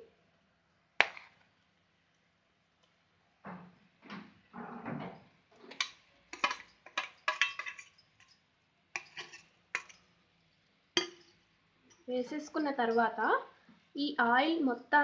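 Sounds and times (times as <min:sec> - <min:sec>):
spoon scraping a steel bowl: 0:05.7 - 0:08.4, 0:09.0 - 0:10.0.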